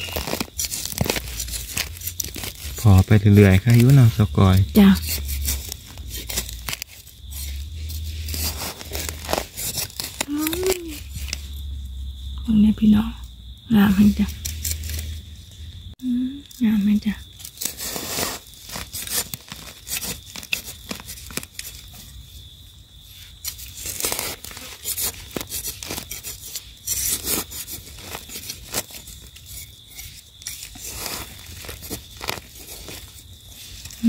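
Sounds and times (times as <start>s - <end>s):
leaf litter crackling and scraping: 0.0s - 11.6s, 17.4s - 22.1s, 23.6s - 34.0s.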